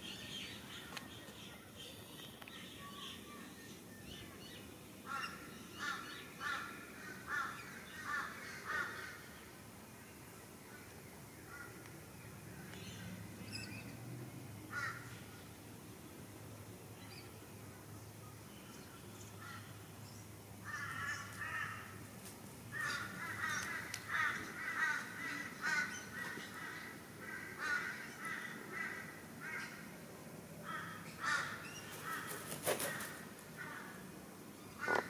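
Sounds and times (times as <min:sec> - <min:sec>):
crow cawing: 0:05.1 - 0:09.2, 0:14.7 - 0:15.1, 0:20.6 - 0:22.0, 0:22.7 - 0:29.9, 0:30.6 - 0:34.0, 0:34.8 - 0:35.0.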